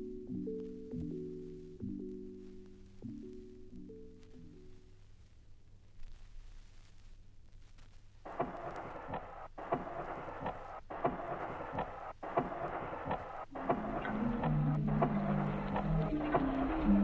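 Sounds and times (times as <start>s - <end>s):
faint vinyl groove noise: 0.0s - 17.0s
lo-fi ambient music: 0.0s - 17.0s
vinyl clicks: 7.8s - 17.0s.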